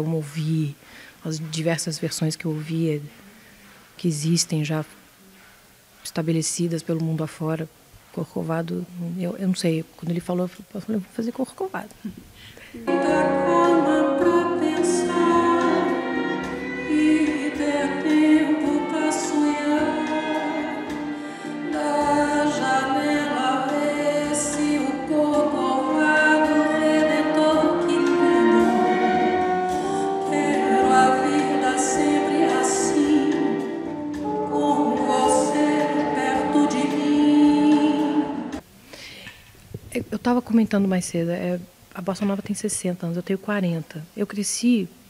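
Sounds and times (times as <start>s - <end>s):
string orchestra: 12.9s - 25.6s
woman singing: 12.9s - 38.6s.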